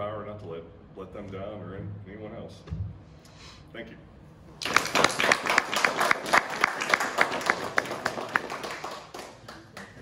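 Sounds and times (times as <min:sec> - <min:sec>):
small group applauding: 0:04.6 - 0:10.0
steady hand claps: 0:04.6 - 0:10.0.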